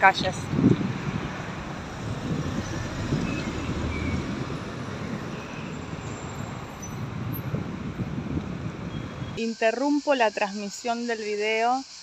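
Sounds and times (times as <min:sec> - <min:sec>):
traffic rumble: 0:00.0 - 0:09.4.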